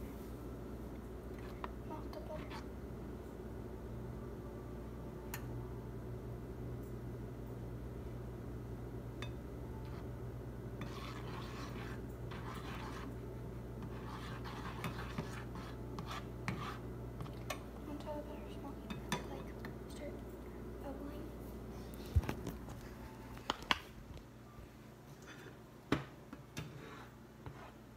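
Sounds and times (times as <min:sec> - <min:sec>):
steady low hum: 0:00.0 - 0:27.9
spatula scraping a frying pan: 0:10.8 - 0:13.1, 0:13.8 - 0:17.3, 0:26.6 - 0:27.8.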